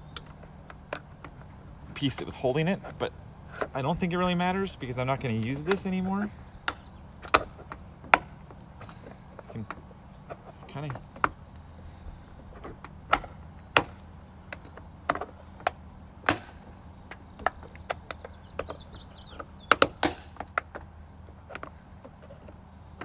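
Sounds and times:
prying and knocking on plastic: 5.4 - 11.6, 12.4 - 23.0.

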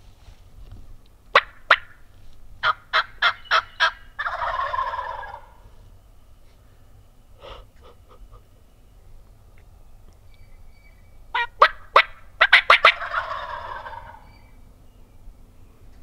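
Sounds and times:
turkey calling: 1.3 - 2.0, 2.6 - 5.8, 10.3 - 14.6
turkey gobbling: 1.3 - 2.0, 2.6 - 5.7, 11.3 - 14.5.

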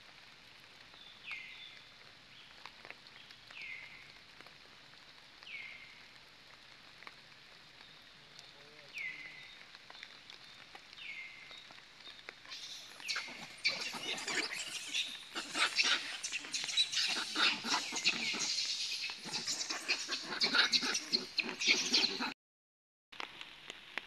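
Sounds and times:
monkeys squealing and chattering: 12.4 - 22.4.

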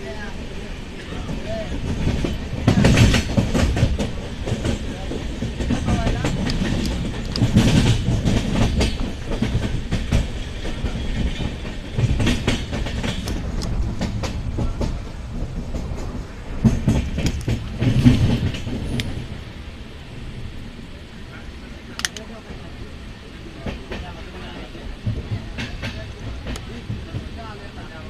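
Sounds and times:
train wheels rumbling: 0.0 - 28.0
wheels clattering over rail joints: 1.0 - 19.4.

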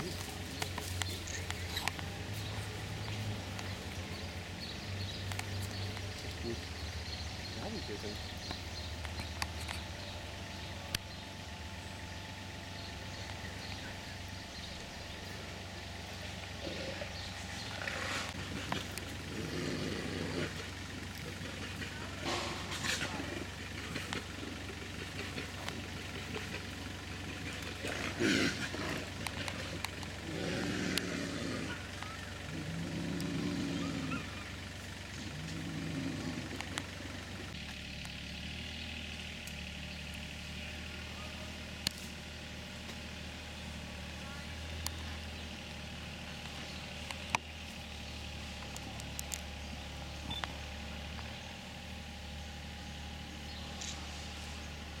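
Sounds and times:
bears growling: 0.0 - 9.9, 15.5 - 37.5
steady low hum: 0.0 - 55.0.

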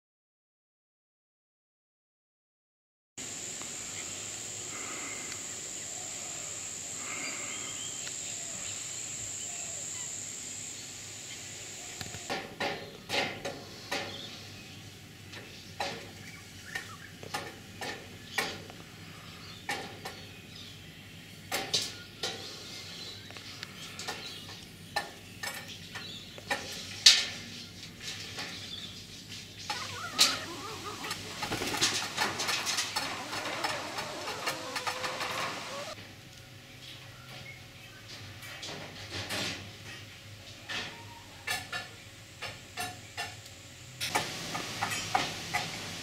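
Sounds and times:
hens clucking: 29.6 - 36.0.

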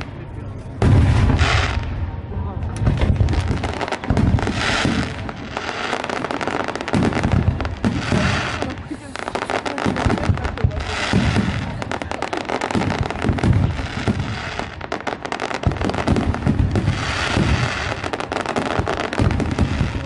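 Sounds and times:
low booms: 0.0 - 5.6
fireworks bangs and crackling: 0.0 - 20.0.

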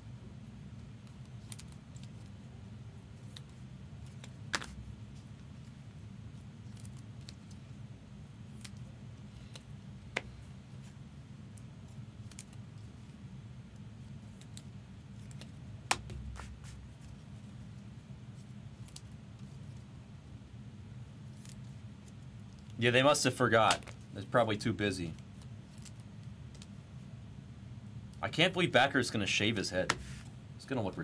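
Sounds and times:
steady low hum: 0.0 - 31.0
plastic card sleeves rustling: 3.1 - 7.7, 14.1 - 17.7, 21.2 - 26.8, 29.2 - 30.3.

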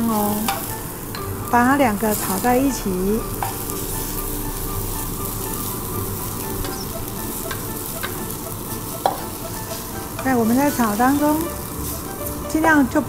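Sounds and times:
mushrooms sizzling in a wok: 0.0 - 13.0
wooden spatula tapping: 6.6 - 10.8.

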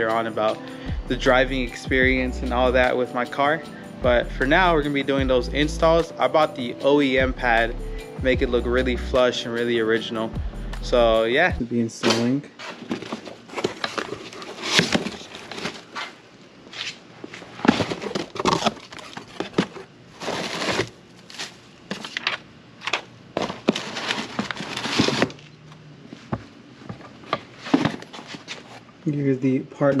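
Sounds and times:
packing paper crinkling: 12.6 - 16.2, 17.3 - 25.5
cardboard box tearing: 12.7 - 16.2, 17.6 - 22.3, 23.4 - 25.4.

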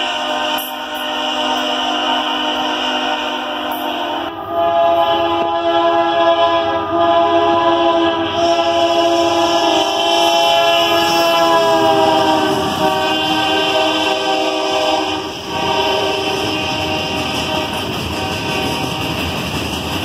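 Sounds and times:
locomotive air horn blast: 0.0 - 19.1.

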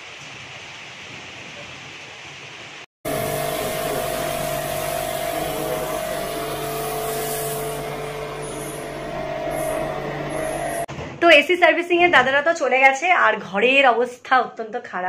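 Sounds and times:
rain pouring: 0.0 - 10.9
jet-wash pump spraying water: 3.1 - 10.9.

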